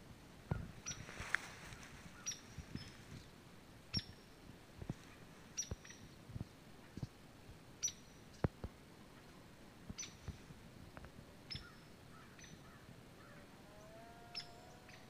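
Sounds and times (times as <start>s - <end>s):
rustle: 0.0s - 15.0s
small bird high call: 11.5s - 15.0s.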